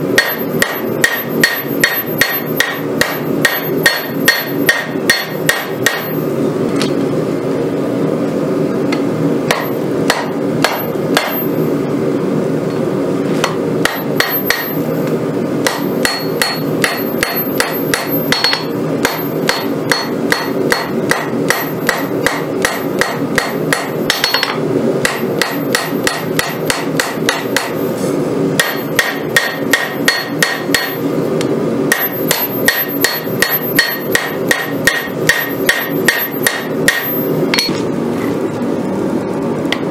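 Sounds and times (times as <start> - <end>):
hammer striking blade on anvil: 0.1 - 6.2, 9.5 - 11.6, 13.4 - 14.8, 15.6 - 27.8, 28.6 - 31.0, 31.9 - 37.8.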